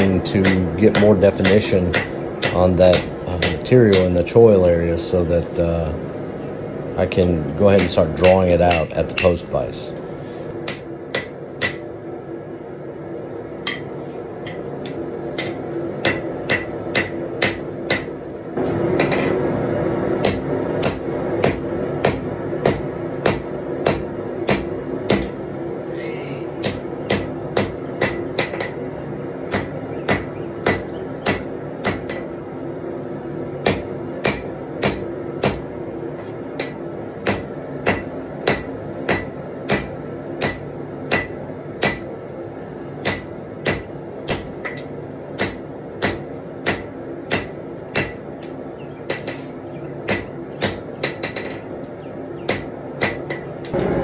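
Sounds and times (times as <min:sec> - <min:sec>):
hammer striking hot steel on anvil: 0:00.0 - 0:04.5, 0:07.5 - 0:11.8, 0:15.4 - 0:18.1, 0:20.2 - 0:25.4, 0:26.6 - 0:28.8, 0:29.5 - 0:32.3, 0:33.6 - 0:35.7, 0:36.6 - 0:42.1, 0:43.0 - 0:48.2, 0:50.1 - 0:51.6, 0:52.5 - 0:54.0.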